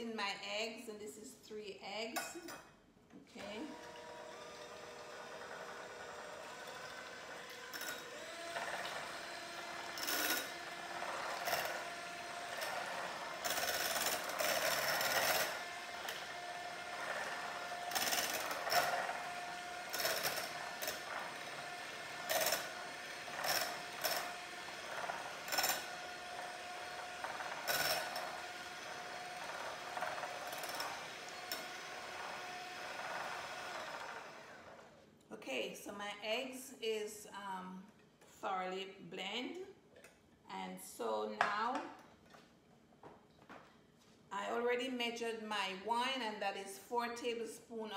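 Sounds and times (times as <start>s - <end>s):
electric hand mixer whining: 3.4s - 35.0s.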